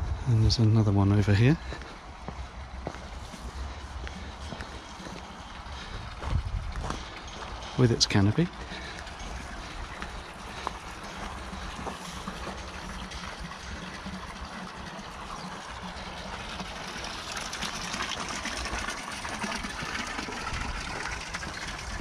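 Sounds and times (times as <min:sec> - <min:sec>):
wind buffeting microphone: 0:00.0 - 0:16.0, 0:19.4 - 0:22.0
footsteps crunching on gravel: 0:00.6 - 0:13.9, 0:19.6 - 0:22.0.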